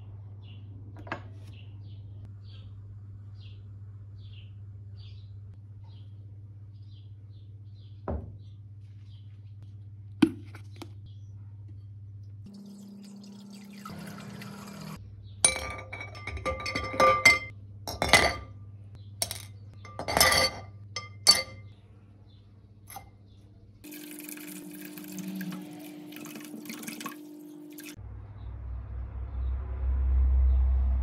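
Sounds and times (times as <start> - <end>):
liquid pouring into bowl: 12.5 - 15.0, 23.8 - 28.0
splashing: 23.9 - 28.0.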